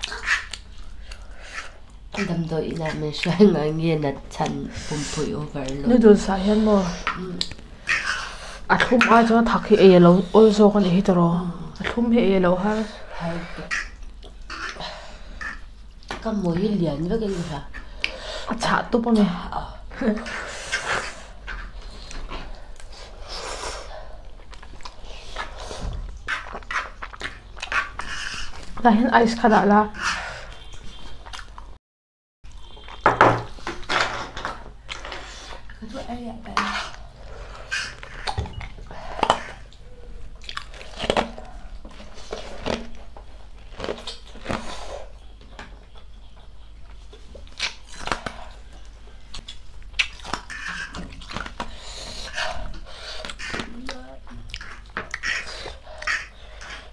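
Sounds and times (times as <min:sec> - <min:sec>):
chewing: 0:00.0 - 0:16.6, 0:20.0 - 0:28.8, 0:30.0 - 0:31.8, 0:33.8 - 0:35.8, 0:36.6 - 0:56.9
forks scraping on plates: 0:36.6 - 0:39.6, 0:50.5 - 0:51.2
fork sounds: 0:49.4 - 0:53.8.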